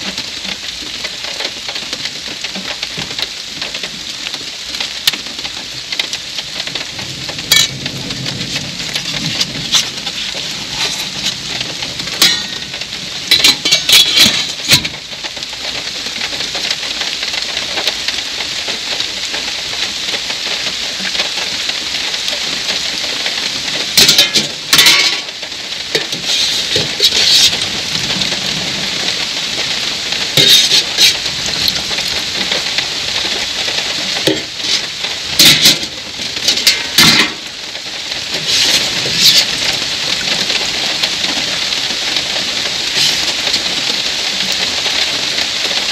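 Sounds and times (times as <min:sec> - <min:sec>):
rain falling: 0:00.0 - 0:45.9
metal spoon clinking in pans: 0:12.2 - 0:12.6, 0:13.3 - 0:14.8, 0:24.0 - 0:25.3, 0:30.4 - 0:31.2, 0:35.4 - 0:35.8.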